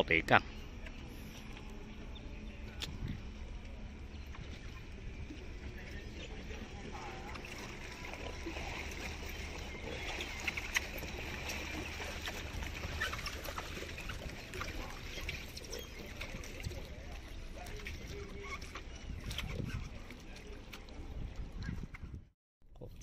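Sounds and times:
faint background sounds: 0:00.0 - 0:12.4
steady low rumble: 0:00.3 - 0:08.6.

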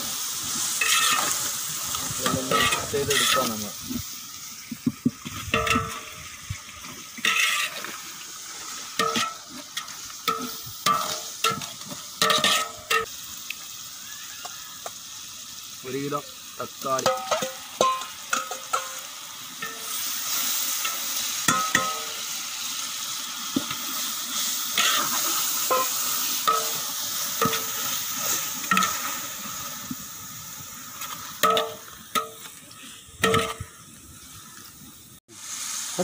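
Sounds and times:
masala sizzling in pot: 0:00.0 - 0:36.0
metal ladle scraping pot: 0:00.8 - 0:01.4, 0:02.2 - 0:03.5, 0:05.5 - 0:06.2, 0:07.2 - 0:07.9, 0:10.3 - 0:13.0.

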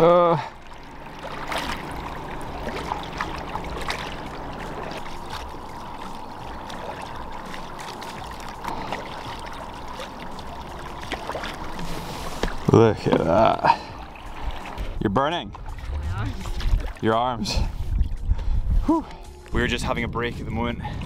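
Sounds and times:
faint steady hum: 0:00.0 - 0:12.8
paddles splashing in water: 0:00.0 - 0:18.3
water trickling off paddles: 0:00.0 - 0:19.6.

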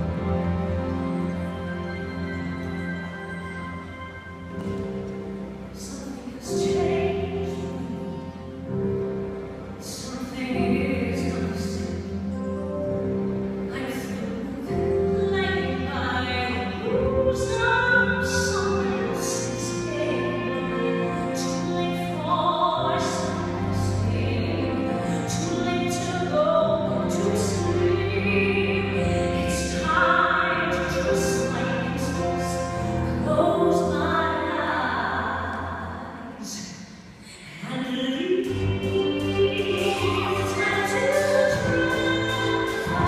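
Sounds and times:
live orchestra: 0:00.0 - 0:43.0
woman singing with vibrato: 0:05.8 - 0:08.4, 0:13.7 - 0:43.0.

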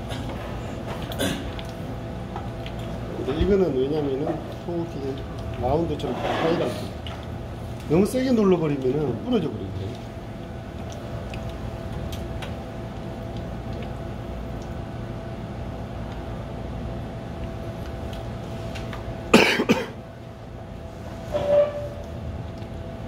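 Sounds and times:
steady low hum: 0:00.0 - 0:23.0
loud cough: 0:01.2 - 0:01.5, 0:19.3 - 0:20.0.

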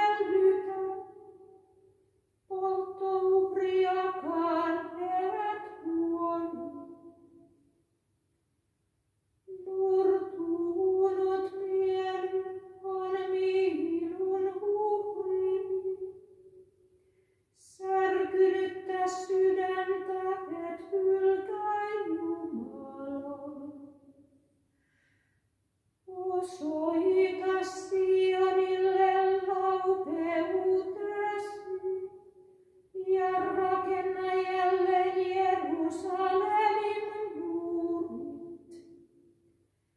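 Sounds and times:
woman chanting unaccompanied: 0:00.0 - 0:01.2, 0:02.5 - 0:06.9, 0:09.5 - 0:16.0, 0:17.6 - 0:23.8, 0:26.1 - 0:32.1, 0:33.0 - 0:38.8.

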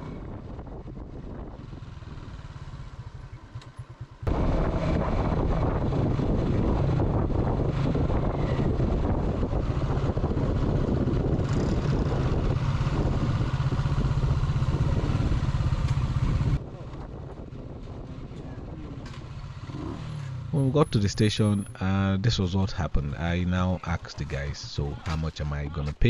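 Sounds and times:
road noise: 0:00.0 - 0:26.0
motorcycle engine running: 0:00.2 - 0:20.6.

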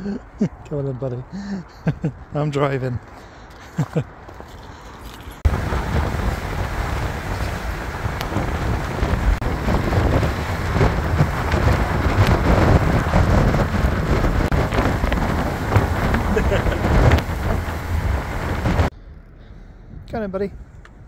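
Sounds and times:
car road and engine noise: 0:00.0 - 0:21.0
wind buffeting microphone: 0:05.4 - 0:21.0.

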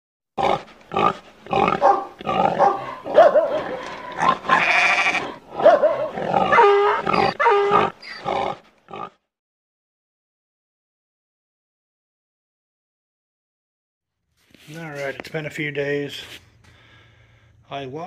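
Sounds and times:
loud animal calls: 0:00.4 - 0:09.2.

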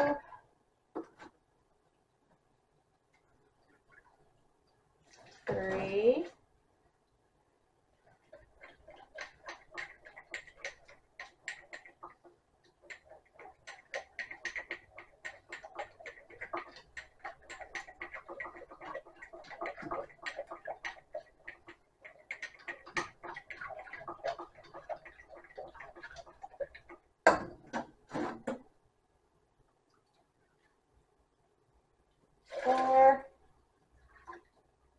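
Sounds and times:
whisk beating in pot: 0:08.2 - 0:27.9
whisk knocking in pot: 0:08.4 - 0:28.6.

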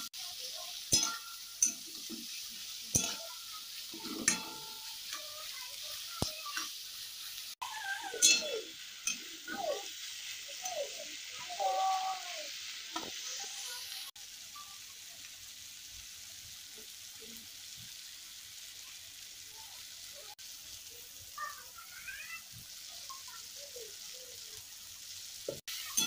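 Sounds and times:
vegetables sizzling in hot oil: 0:00.0 - 0:26.0
metal spatula scraping a pan: 0:00.9 - 0:05.2.

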